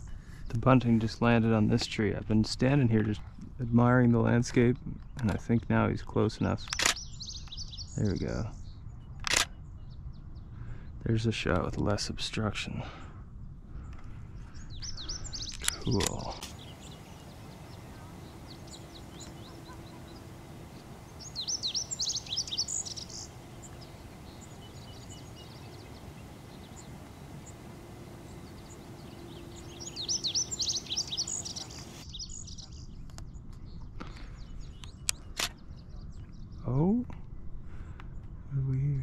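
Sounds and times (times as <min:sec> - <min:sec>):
steady outdoor hiss: 0:00.0 - 0:33.5
bird singing high notes: 0:14.9 - 0:32.4.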